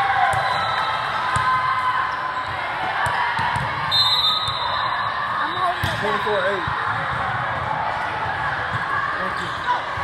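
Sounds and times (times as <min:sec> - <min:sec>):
many voices chattering: 0:00.0 - 0:10.0
short whistle: 0:03.9 - 0:04.7
volleyballs thudding: 0:05.6 - 0:08.9.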